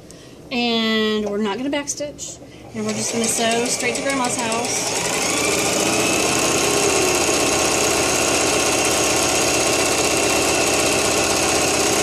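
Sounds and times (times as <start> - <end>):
electric sewing machine running: 2.8 - 12.0.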